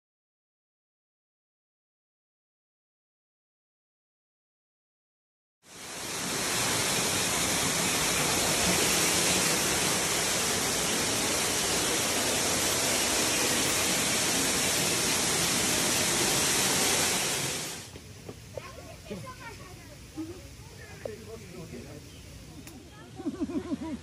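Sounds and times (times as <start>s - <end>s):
waterfall rushing: 5.7s - 17.9s.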